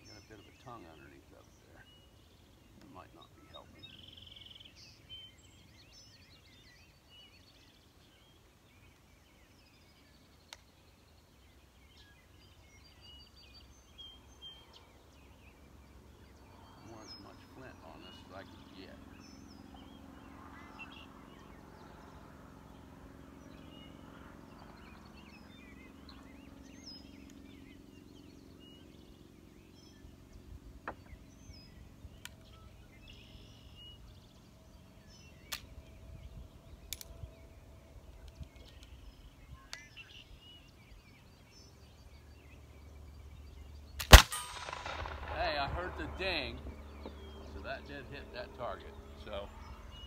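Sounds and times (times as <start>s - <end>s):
birds chirping: 0.0s - 50.0s
flintlock pistol shot: 44.0s - 46.2s.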